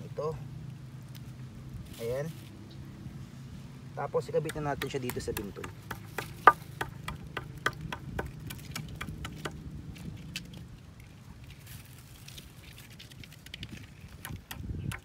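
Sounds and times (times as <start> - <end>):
clicks and rustles of net handling: 8.4 - 14.5.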